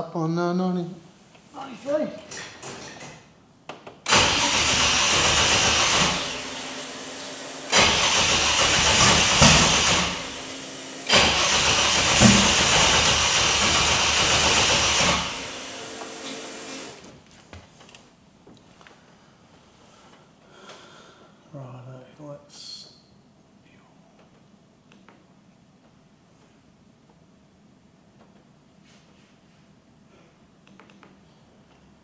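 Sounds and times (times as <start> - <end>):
engine cranking on starter: 4.1 - 7.1, 7.7 - 15.7.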